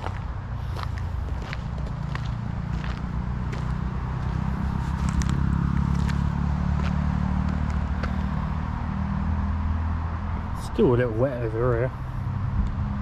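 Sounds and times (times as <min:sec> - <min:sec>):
footsteps crunching on tarmac: 0:00.0 - 0:08.7
low road traffic rumble: 0:00.0 - 0:13.0.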